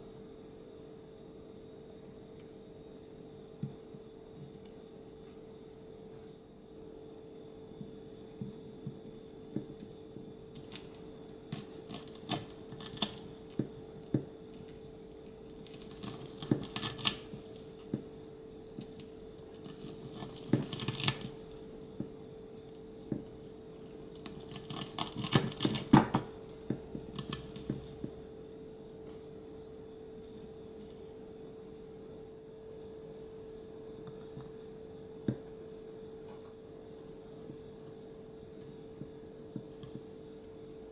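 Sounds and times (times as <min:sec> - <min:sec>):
knife crunching fried crust: 0:10.6 - 0:13.6, 0:14.5 - 0:17.8, 0:18.9 - 0:21.4, 0:24.1 - 0:26.3.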